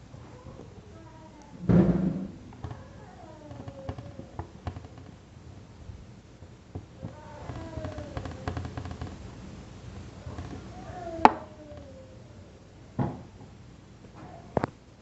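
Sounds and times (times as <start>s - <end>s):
sharp knock on tray: 1.6s - 2.3s
dull thump: 1.6s - 2.4s.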